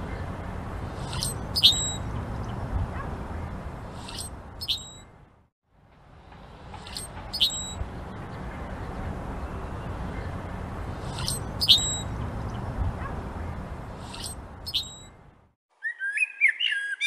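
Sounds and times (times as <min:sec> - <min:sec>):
blackbird squeaky song: 0:00.9 - 0:02.6, 0:03.4 - 0:05.1, 0:06.8 - 0:07.9, 0:11.0 - 0:12.7, 0:13.4 - 0:15.2, 0:15.8 - 0:17.0.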